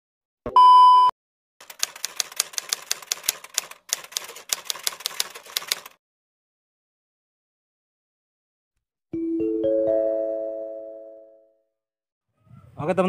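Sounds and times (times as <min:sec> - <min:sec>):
typewriter keystroke clicks: 0:01.6 - 0:06.0.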